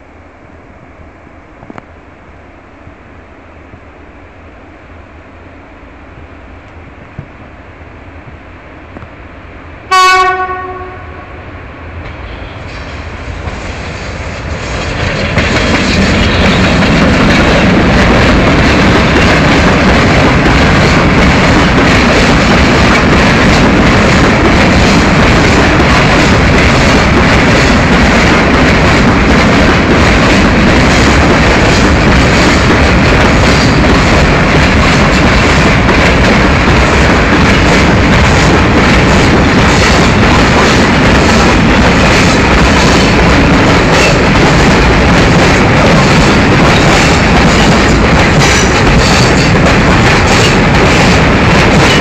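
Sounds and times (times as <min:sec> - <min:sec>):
locomotive horn blast: 0:09.9 - 0:11.5
train wheels clattering over rail joints: 0:14.3 - 0:52.0.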